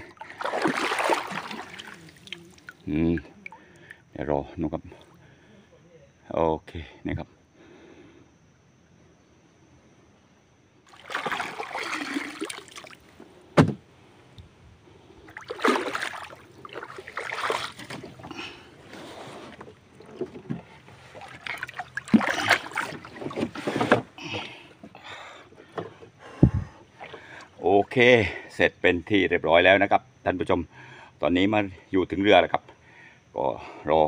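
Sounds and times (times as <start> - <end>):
footsteps wading through mud and water: 0.0 - 3.2, 10.9 - 13.1, 15.3 - 24.1.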